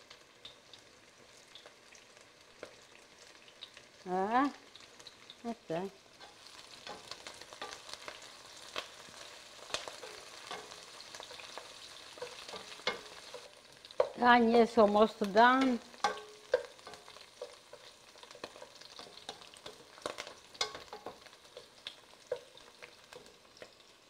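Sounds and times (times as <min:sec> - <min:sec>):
onions sizzling in oil: 0:00.0 - 0:24.0.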